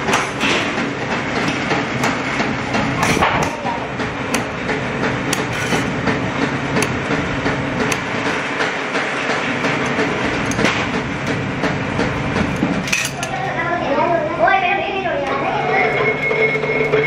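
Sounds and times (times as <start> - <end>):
workshop machinery humming: 0.0 - 17.0
hand shears cutting steel sheet: 1.4 - 11.4.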